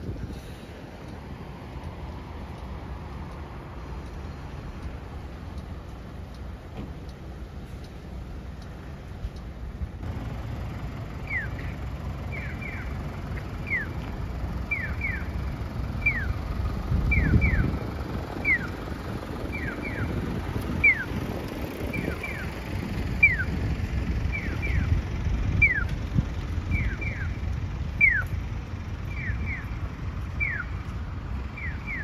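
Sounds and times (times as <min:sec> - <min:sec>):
wind rumble on microphone: 0:00.0 - 0:06.2, 0:11.3 - 0:32.0
crossing signal chirping: 0:10.0 - 0:21.2, 0:21.8 - 0:23.6, 0:24.2 - 0:26.0, 0:26.6 - 0:32.0.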